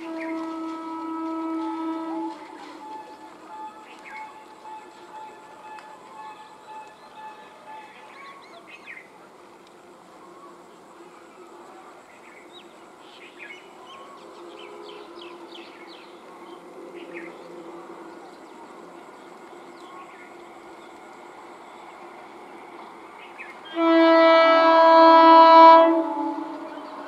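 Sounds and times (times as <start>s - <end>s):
train horn blast: 0.0s - 7.9s, 23.6s - 27.0s
train humming: 0.0s - 27.0s.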